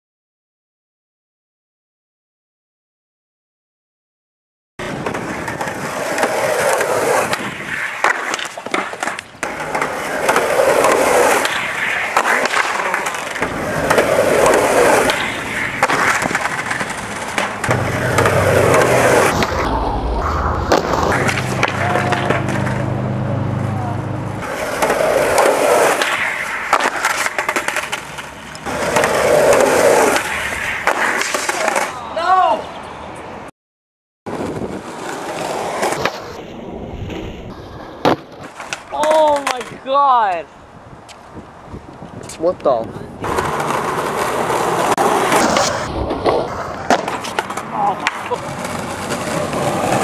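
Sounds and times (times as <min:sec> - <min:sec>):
skateboard clattering on ground: 0:04.8 - 0:19.4, 0:24.4 - 0:32.0, 0:37.8 - 0:39.8, 0:43.2 - 0:50.0
skateboard wheels rolling on asphalt: 0:04.8 - 0:33.5, 0:34.3 - 0:50.0.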